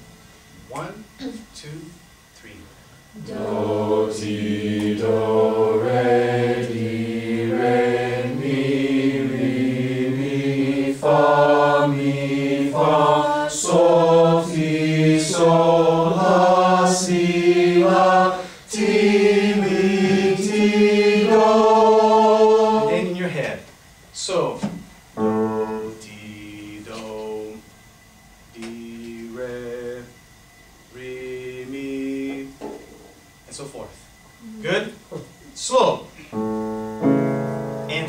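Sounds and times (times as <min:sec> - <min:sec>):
class singing scale syllables: 0:03.2 - 0:23.5, 0:28.5 - 0:30.2.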